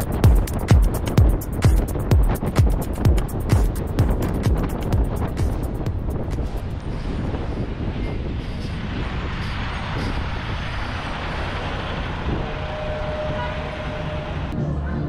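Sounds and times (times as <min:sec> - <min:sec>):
traffic engines rumbling: 0:00.0 - 0:15.0
brake squeal: 0:06.8 - 0:14.6.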